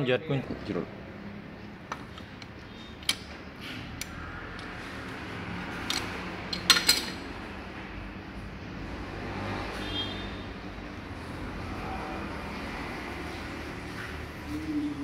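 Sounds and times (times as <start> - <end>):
metal wrenches clinking: 5.8 - 7.3.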